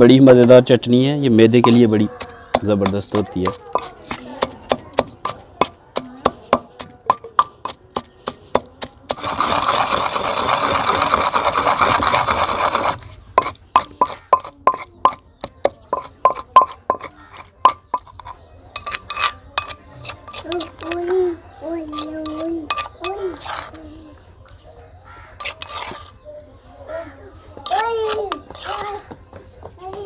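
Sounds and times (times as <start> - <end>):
pestle scraping against stone: 1.4 - 24.0, 25.2 - 26.2, 27.5 - 29.4
pestle pounding in stone mortar: 1.6 - 21.1, 21.9 - 23.7, 27.6 - 29.2.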